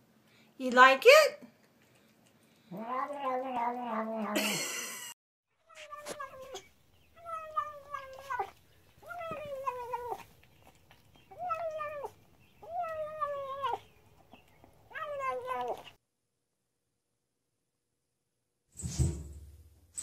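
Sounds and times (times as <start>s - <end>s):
cat wailing meows: 2.7s - 4.4s, 7.2s - 10.2s, 11.3s - 13.8s, 14.9s - 15.8s.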